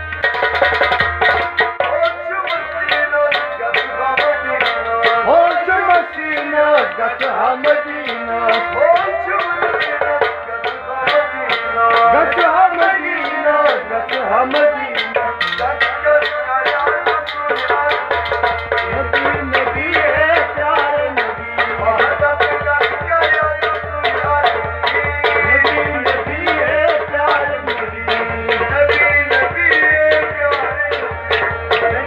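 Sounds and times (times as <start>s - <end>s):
hand drum rhythm: 0.0s - 32.0s
harmonium chords: 0.0s - 32.0s
man singing: 1.8s - 32.0s.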